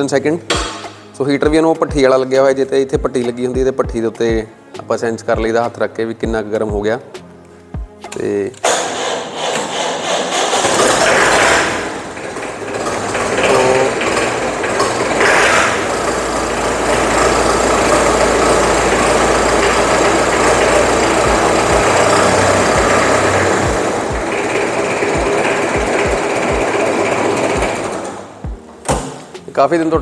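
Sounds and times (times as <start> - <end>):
diesel engine cranking slowly: 8.6 - 28.4
tractor engine idling: 8.6 - 29.2.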